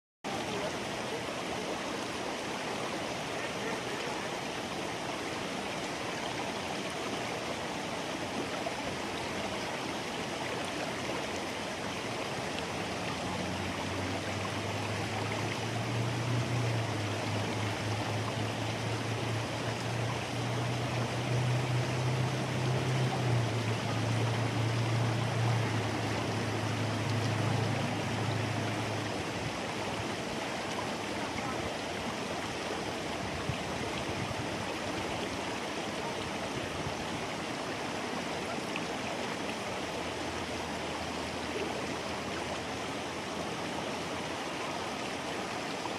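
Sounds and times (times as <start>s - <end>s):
running water rushing: 0.2s - 45.9s.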